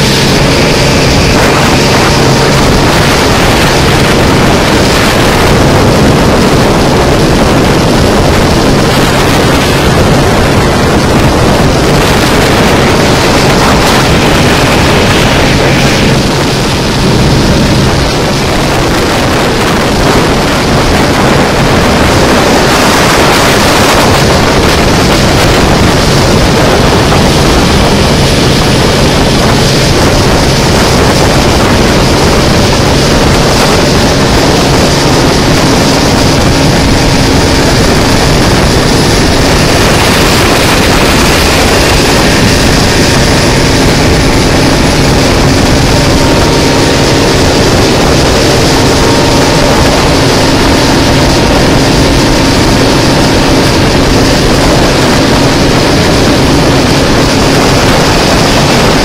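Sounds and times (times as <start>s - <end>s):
boat engine hum: 0.0s - 59.0s
water rushing along hull: 0.0s - 59.0s
wind buffeting microphone: 0.0s - 59.0s.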